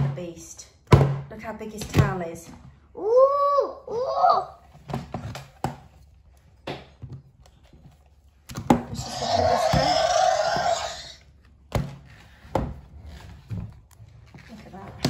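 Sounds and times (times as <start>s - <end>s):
electronic toy dinosaur roar: 9.0s - 11.2s.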